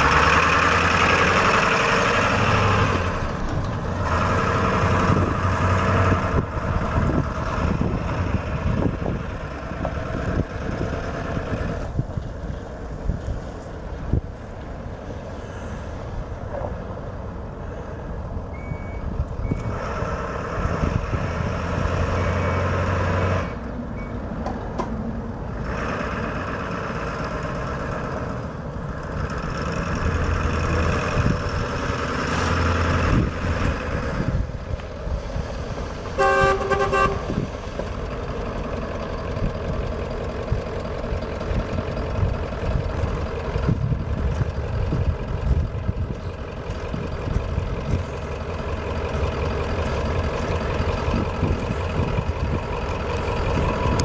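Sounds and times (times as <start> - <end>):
diesel engine running: 0.0 - 54.0
truck horn honk: 36.2 - 37.5.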